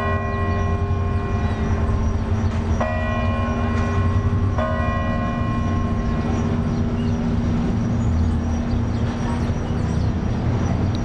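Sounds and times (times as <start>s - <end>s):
large clock bell ringing: 0.0s - 7.0s
city street traffic rumble: 0.0s - 11.0s.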